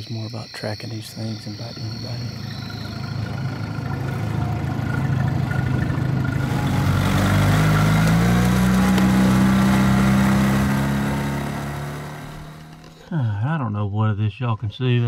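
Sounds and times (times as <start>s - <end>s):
engine speeding up: 2.2s - 13.0s.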